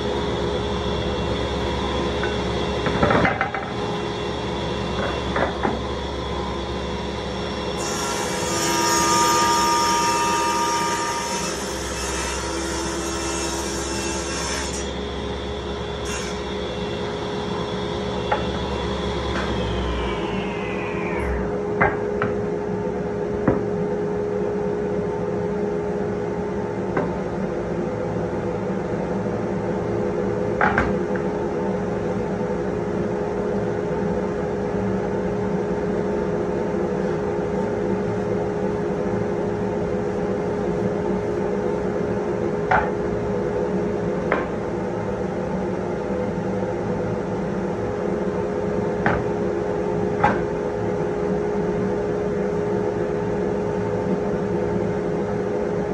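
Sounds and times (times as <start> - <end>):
shop vacuum humming: 14.2 - 21.9.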